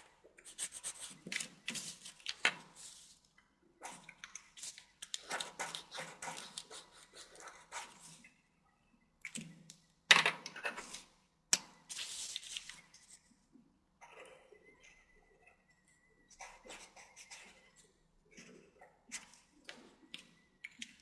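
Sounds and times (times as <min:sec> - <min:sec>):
marker scratching on paper: 0:00.4 - 0:02.2, 0:03.8 - 0:08.2, 0:16.3 - 0:17.7.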